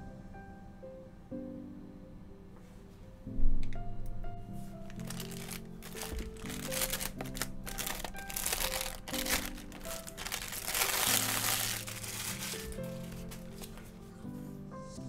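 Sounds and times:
light background music: 0.0 - 15.0
plastic bag crinkling: 4.9 - 14.0.

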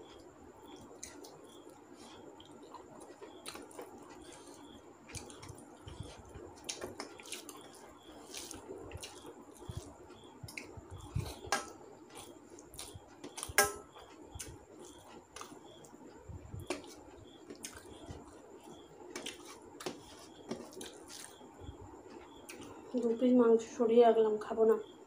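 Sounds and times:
chewing: 0.0 - 11.5, 12.1 - 13.6, 14.3 - 16.0, 16.6 - 21.5
fingers squishing food: 0.1 - 16.0, 16.6 - 21.5.

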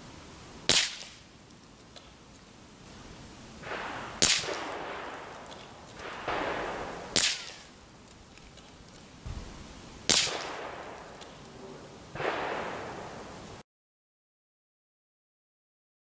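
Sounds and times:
rifle shots: 0.7 - 1.3, 2.9 - 13.6.

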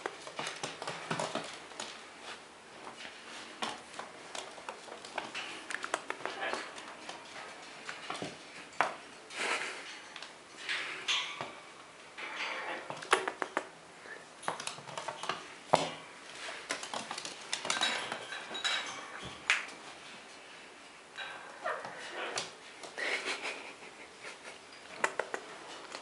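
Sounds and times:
squirrel claws scrabbling on floor: 0.0 - 9.5, 14.4 - 19.8.

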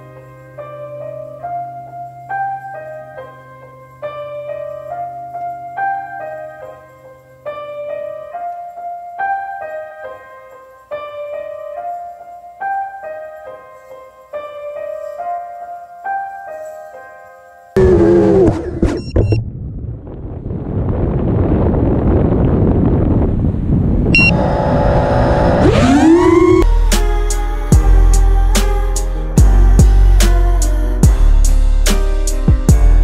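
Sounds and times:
loud rush of noise: 17.8 - 26.7
piano broken-chord figure: 24.2 - 33.0.

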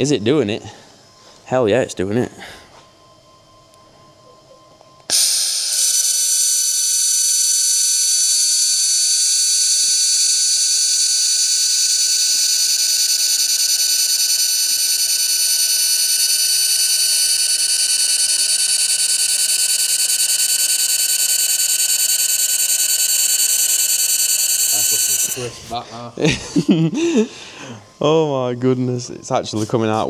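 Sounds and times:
laser welder whine with hiss: 5.1 - 25.7.

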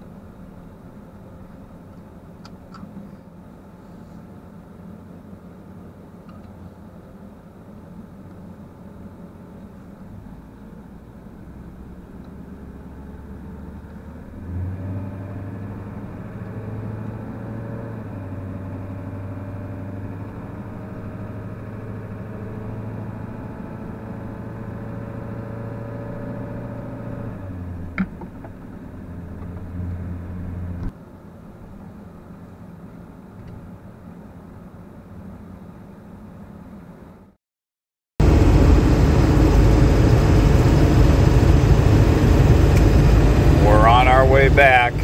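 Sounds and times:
diesel truck engine running: 38.2 - 45.0.

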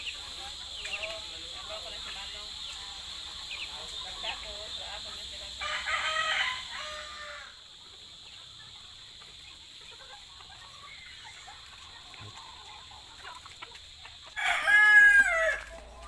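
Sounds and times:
rooster crowing: 5.5 - 7.6, 14.3 - 15.9.

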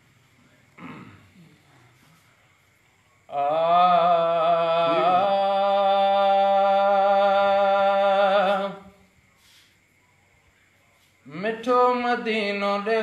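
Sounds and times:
man singing a long note: 3.3 - 8.9.

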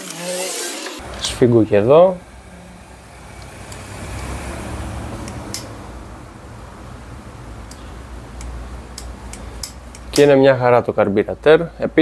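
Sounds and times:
wrench metal clicks: 7.7 - 10.4.

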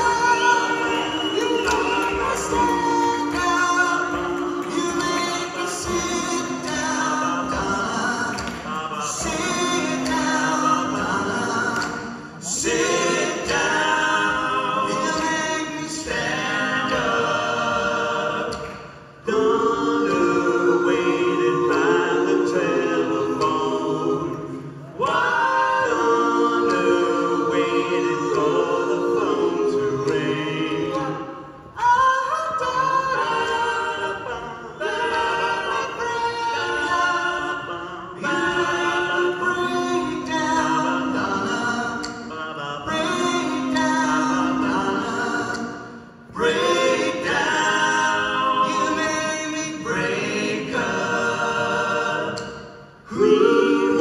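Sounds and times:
men singing a cappella harmony: 0.0 - 54.0.

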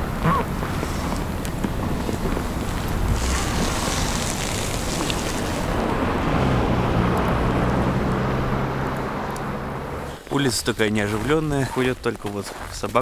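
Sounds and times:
wind on microphone: 0.0 - 8.0.

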